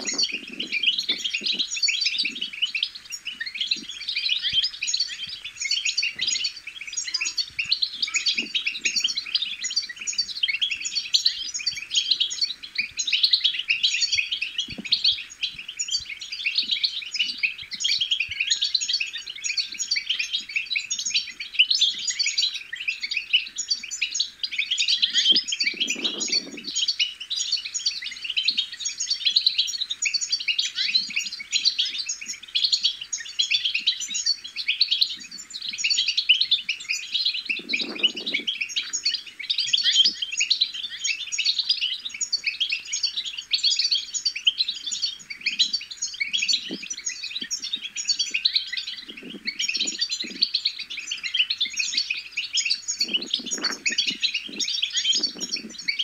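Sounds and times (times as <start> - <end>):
finch twittering: 0.0 - 56.0.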